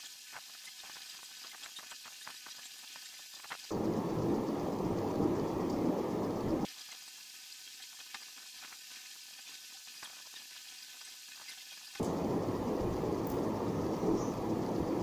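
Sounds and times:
steady crackling noise: 3.3s - 6.7s, 12.0s - 15.0s.

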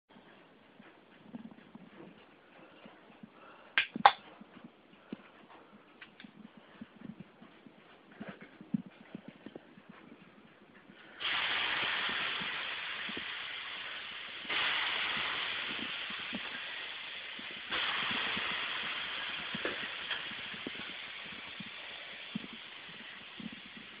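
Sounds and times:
steam hissing off hot stones: 11.1s - 24.0s.

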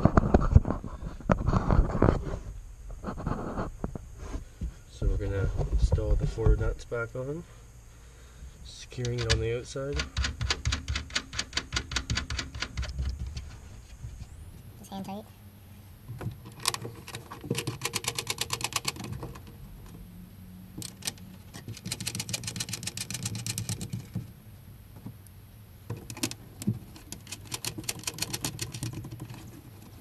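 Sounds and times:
rapid clicking of nut driver: 9.0s - 13.4s, 16.5s - 19.4s, 20.8s - 24.1s, 25.9s - 29.5s.

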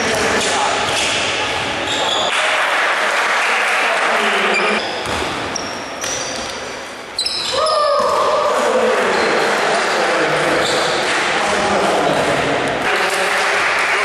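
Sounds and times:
shoes squeaking: 0.8s - 2.3s, 4.5s - 7.8s
basketball bouncing on wooden floor: 5.0s - 6.2s.

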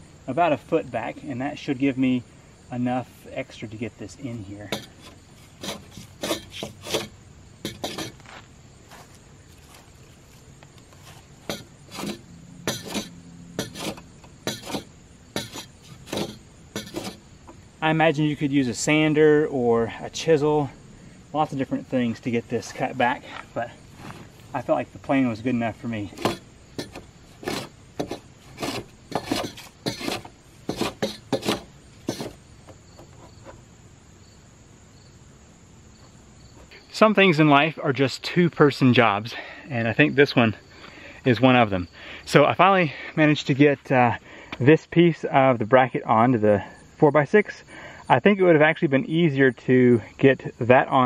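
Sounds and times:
crickets chirping: 0.0s - 51.0s
hand plane scraping wood: 4.7s - 8.4s, 10.9s - 17.2s, 26.1s - 32.4s, 33.0s - 33.6s.

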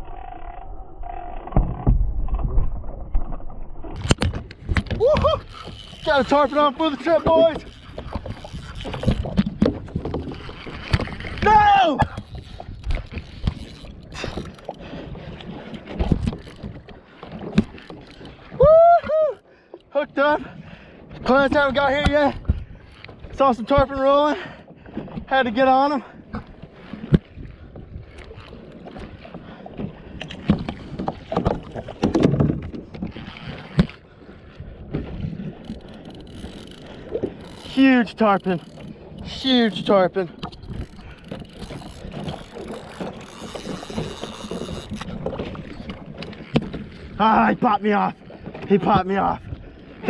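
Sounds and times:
water sloshing around kayak: 0.0s - 50.0s
wind buffeting microphone: 1.4s - 19.2s, 20.4s - 24.0s, 26.2s - 50.0s.

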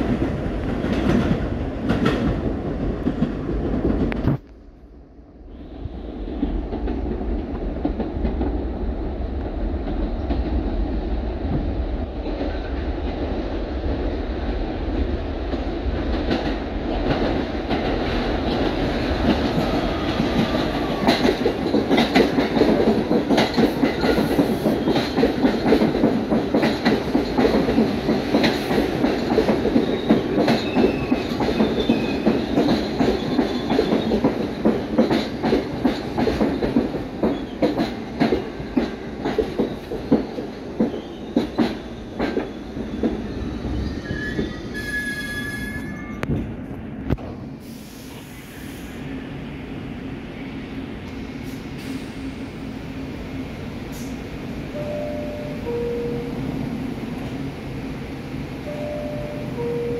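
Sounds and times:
subway train rumbling: 0.0s - 59.9s
wheels clacking over rail joints: 15.5s - 43.2s.

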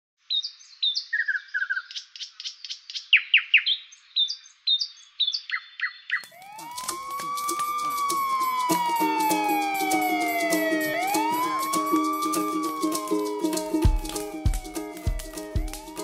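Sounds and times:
bird chirps: 0.2s - 16.0s
fire engine siren wail: 6.3s - 16.0s
upbeat music: 6.4s - 16.0s.

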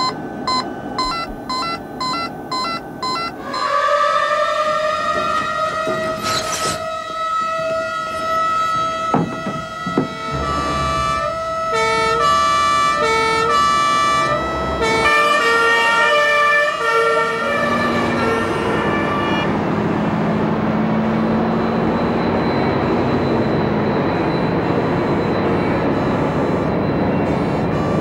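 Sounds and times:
fire engine two-tone sirens: 0.0s - 28.0s
heavy vehicle engine humming: 0.0s - 28.0s.

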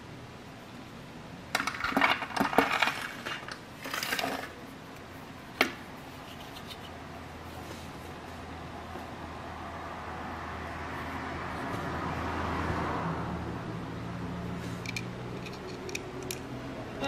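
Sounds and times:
small steel parts clinking: 14.8s - 16.5s.

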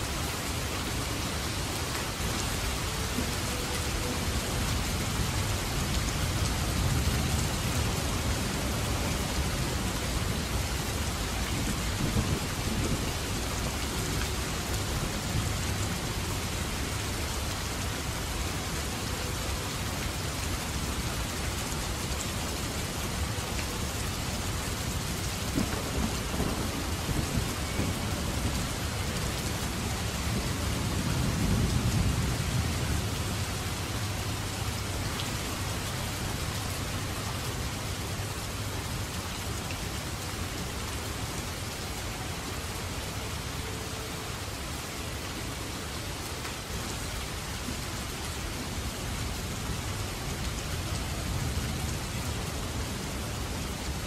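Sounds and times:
heavy rain falling: 0.0s - 54.0s
thunder rumbling: 25.5s - 28.9s.

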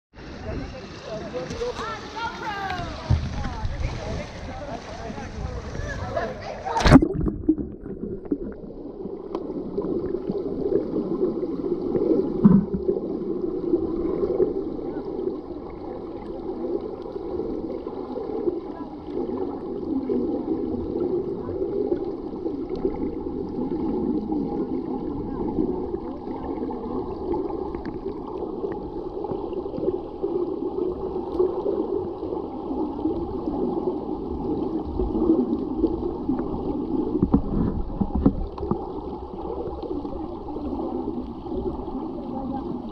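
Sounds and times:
muffled underwater churning: 0.1s - 42.9s
underwater knock: 12.4s - 12.9s.

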